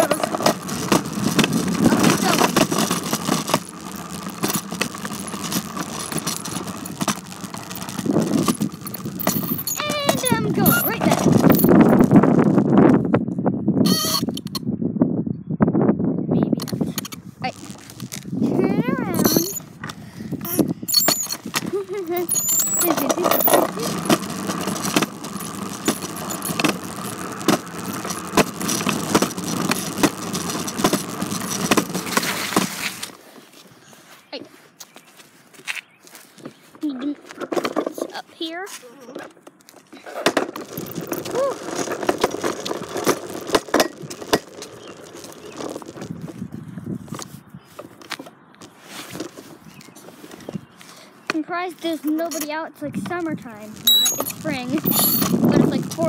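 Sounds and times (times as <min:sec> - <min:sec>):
bicycle rattling over rough ground: 0:00.0 - 0:14.6, 0:16.6 - 0:56.0
steady rumbling: 0:00.0 - 0:33.2, 0:40.3 - 0:47.3, 0:51.3 - 0:56.0.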